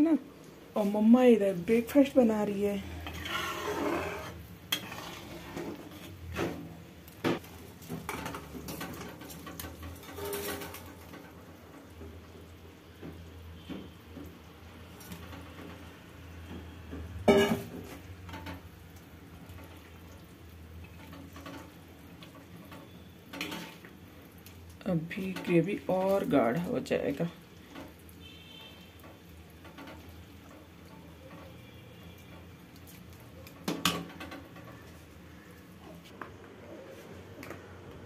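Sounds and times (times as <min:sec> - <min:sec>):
ladle scraping metal pan: 0:02.8 - 0:06.6, 0:08.1 - 0:10.9, 0:23.3 - 0:23.8.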